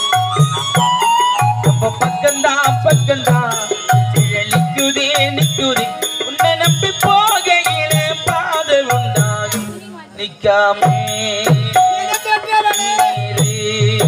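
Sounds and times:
harmonium: 0.0s - 14.0s
steady drum beat: 0.0s - 14.0s
man singing: 0.8s - 14.0s.

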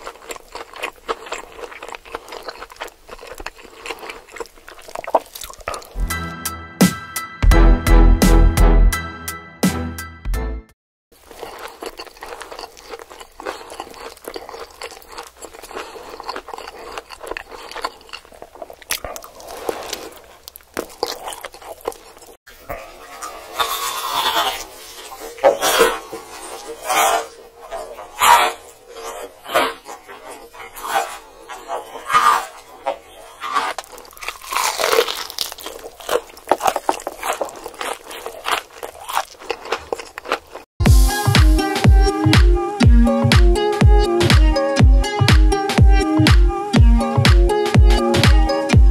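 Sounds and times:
food crackling: 0.0s - 6.0s, 11.1s - 41.2s
person crunching and chewing: 0.0s - 6.0s, 11.2s - 42.2s.

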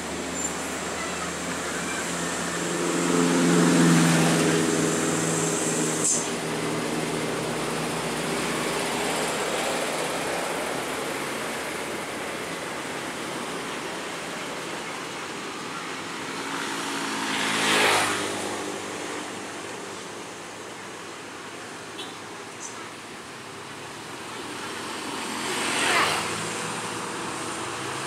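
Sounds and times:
vehicle passing close by: 2.1s - 11.4s, 16.6s - 19.7s, 25.0s - 28.0s.

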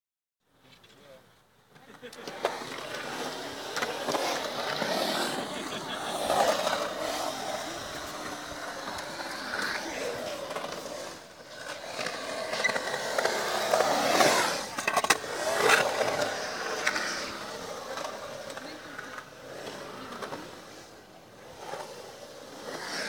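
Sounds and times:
skateboard wheels rolling on concrete: 0.5s - 23.0s.

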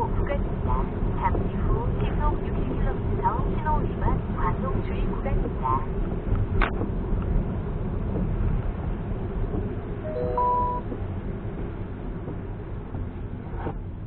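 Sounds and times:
tyres rumbling on wet road: 0.0s - 10.1s
short electronic beep: 10.1s - 10.9s.

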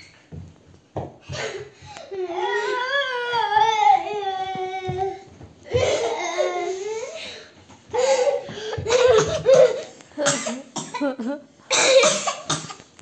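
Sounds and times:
child whining cry: 1.3s - 9.8s
child laughing: 8.0s - 9.9s.

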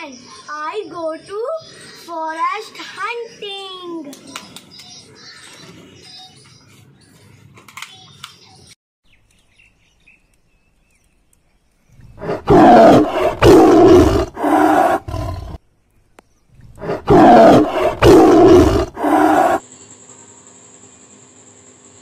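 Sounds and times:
tiger roaring: 12.0s - 15.6s, 16.6s - 19.6s.

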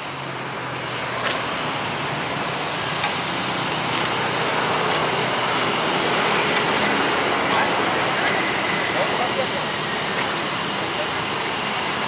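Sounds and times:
bus engine idling: 0.0s - 12.0s.

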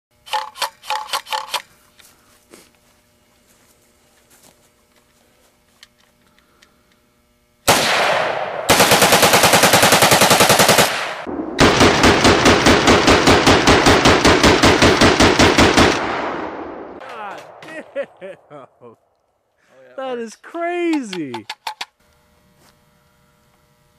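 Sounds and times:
rifle rapid shots: 7.7s - 16.8s.

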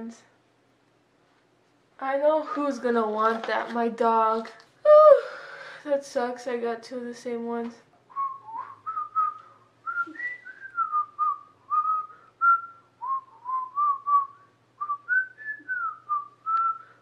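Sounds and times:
person whistling a tune: 8.1s - 17.0s.

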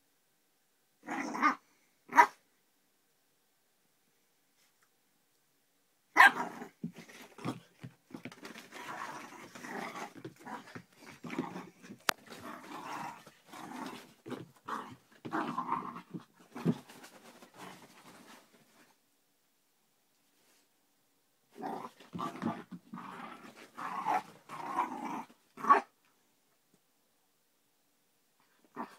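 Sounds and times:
puppy yapping and barking: 6.2s - 6.5s
puppy growling: 6.2s - 16.9s, 21.6s - 25.9s.

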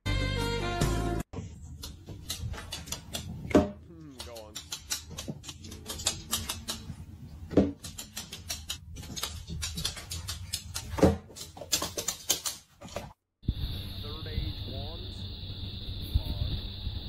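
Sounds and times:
rapid light clicks: 1.8s - 3.4s, 4.2s - 7.0s, 7.8s - 12.7s.

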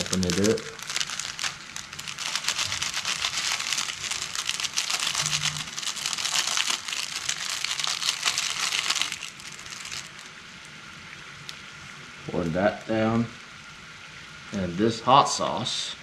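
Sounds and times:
plastic packet crinkling: 0.0s - 10.4s
boiling water bubbling: 0.0s - 16.0s.

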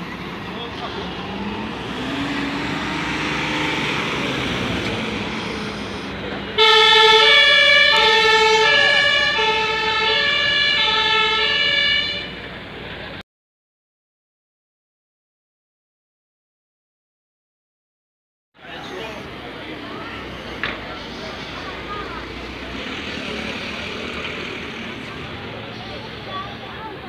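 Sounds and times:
vehicle running: 0.0s - 13.2s, 18.6s - 27.0s
ambulance two-tone siren: 2.4s - 12.4s.

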